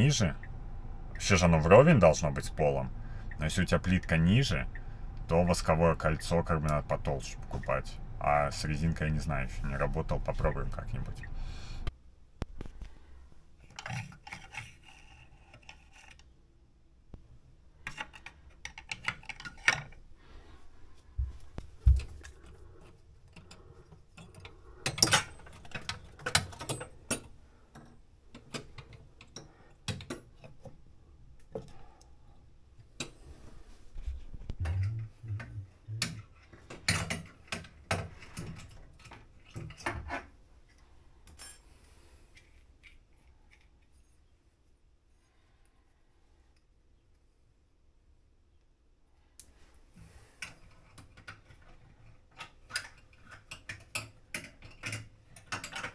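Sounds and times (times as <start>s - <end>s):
hand tools clicking and clinking: 52.3s - 55.9s.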